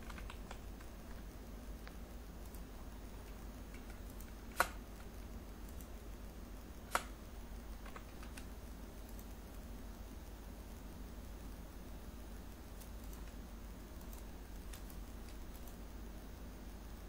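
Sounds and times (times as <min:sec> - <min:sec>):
computer mouse clicks: 0:00.0 - 0:06.0, 0:06.8 - 0:09.7, 0:12.7 - 0:15.8
faint low hum: 0:00.0 - 0:17.0
faint ticks: 0:06.7 - 0:10.4, 0:12.4 - 0:15.8.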